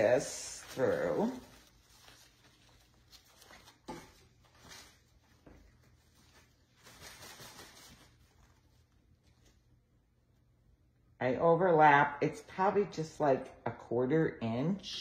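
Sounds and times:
faint rustling of leaves and ribbon: 0.0s - 9.7s.

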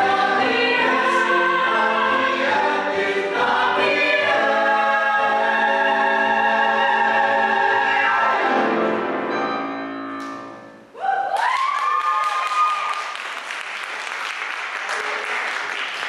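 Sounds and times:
vocal ensemble holding a chord: 0.0s - 9.7s
whoops and cheers: 11.0s - 13.2s
audience applauding: 11.3s - 16.0s.

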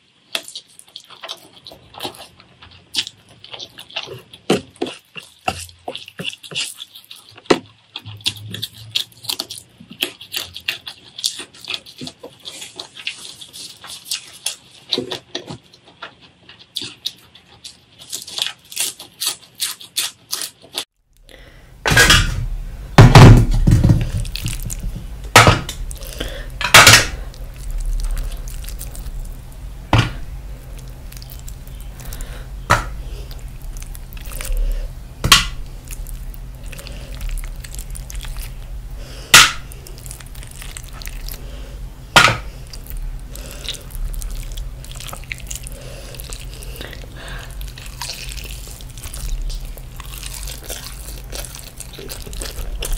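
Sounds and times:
lettuce crunching: 0.0s - 21.6s, 23.0s - 52.9s
wet squelching of food: 0.0s - 21.7s, 23.9s - 52.9s
low hum: 21.2s - 52.9s.

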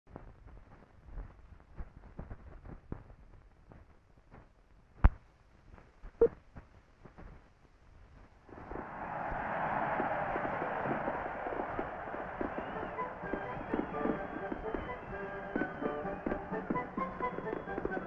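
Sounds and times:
film crackles and pops: 0.1s - 18.0s
fireworks crackling: 8.5s - 18.0s.

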